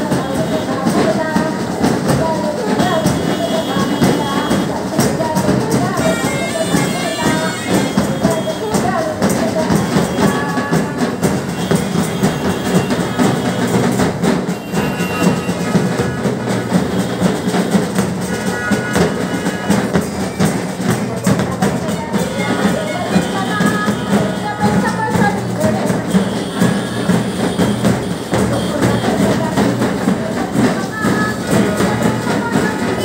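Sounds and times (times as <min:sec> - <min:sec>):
procession band drums: 0:00.0 - 0:33.0.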